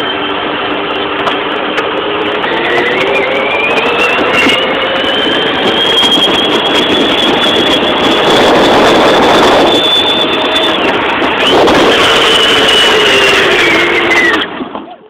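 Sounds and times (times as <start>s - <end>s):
electric motor whine: 0.0s - 14.7s
plastic wheels rumbling on road: 1.0s - 15.0s.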